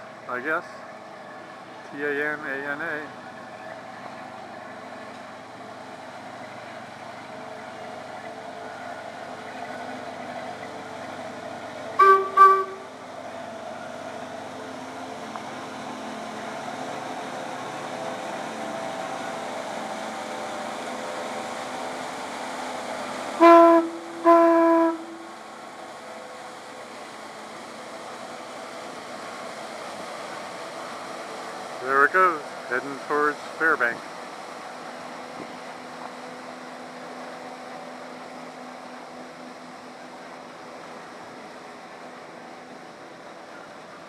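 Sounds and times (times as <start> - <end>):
paddlewheel and engine churning: 0.0 - 44.0
paddleboat horn blasts: 12.0 - 13.0, 23.4 - 25.4.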